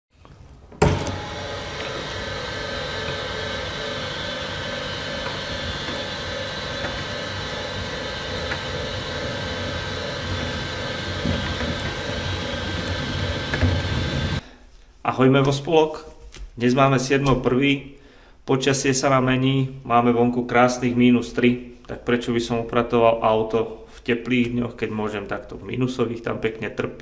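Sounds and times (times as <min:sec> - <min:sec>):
conveyor mechanical hum: 0:00.2 - 0:14.4.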